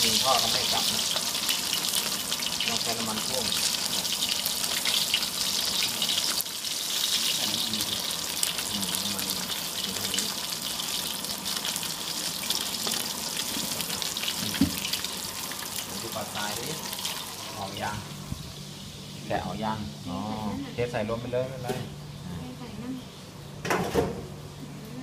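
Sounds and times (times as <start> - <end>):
fish frying in hot oil: 0.0 - 19.2.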